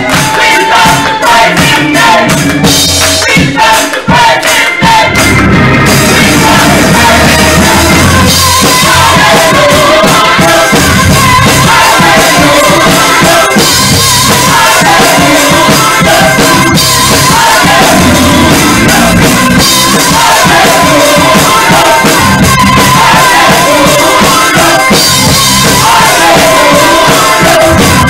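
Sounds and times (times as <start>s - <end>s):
choir singing gospel song: 0.0s - 28.0s
drum kit steady beat: 0.0s - 28.0s.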